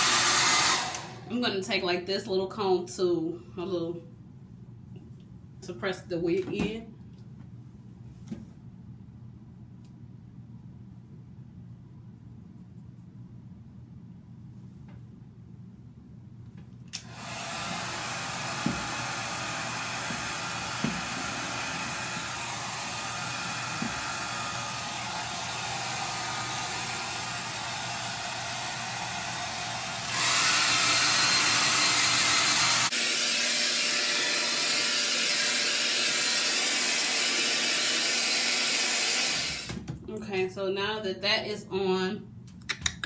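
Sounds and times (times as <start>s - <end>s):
hair dryer blowing: 0.0s - 1.5s, 17.0s - 39.8s.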